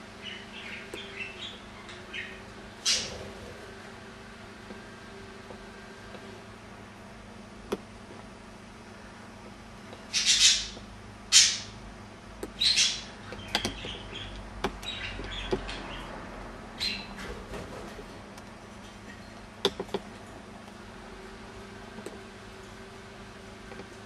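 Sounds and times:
budgerigars chirping: 0.2s - 3.2s, 10.1s - 11.7s, 12.6s - 16.1s, 16.8s - 17.2s.

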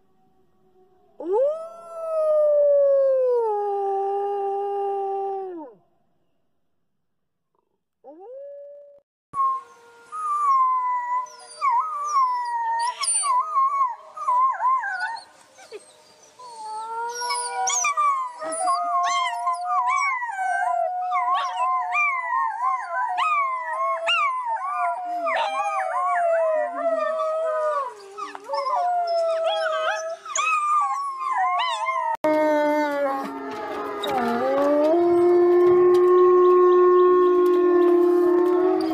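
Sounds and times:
wolf pups howling: 10.0s - 38.9s
pups yipping and yelping: 17.1s - 20.2s, 21.2s - 26.4s, 27.9s - 32.1s.

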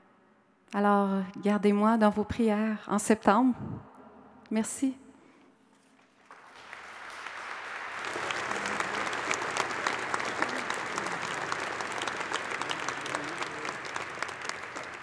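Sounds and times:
congregation applauding: 6.0s - 15.0s.

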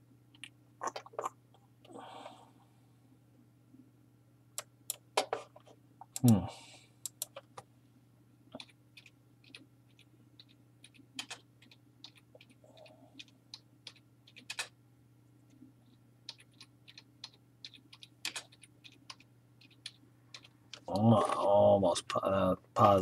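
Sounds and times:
faint steady hum: 0.0s - 23.0s
keyboard typing: 8.5s - 14.8s, 15.9s - 21.0s.

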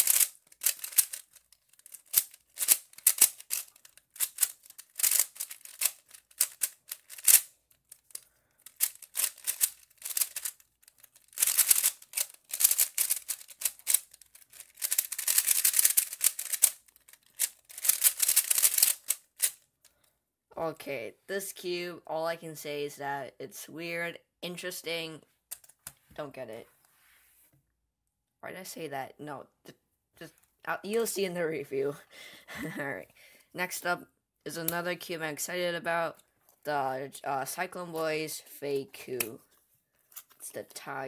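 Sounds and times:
speed cube plastic clicking: 0.0s - 19.6s.

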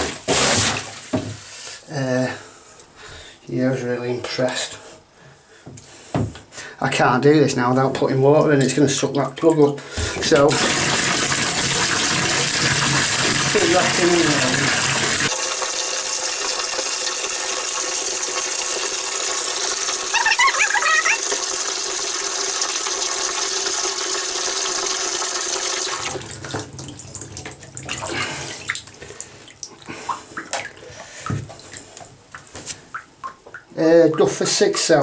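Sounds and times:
water sloshing and dripping: 25.2s - 35.0s.

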